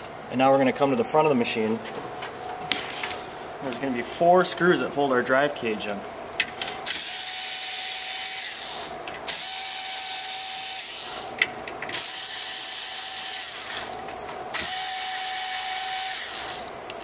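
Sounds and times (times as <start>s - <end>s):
electric screwdriver whirring: 6.9s - 11.3s, 14.6s - 16.7s.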